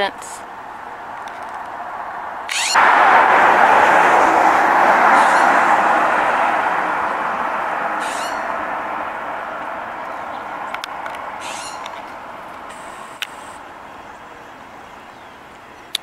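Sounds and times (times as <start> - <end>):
motor vehicle driving past: 0.5 - 14.2.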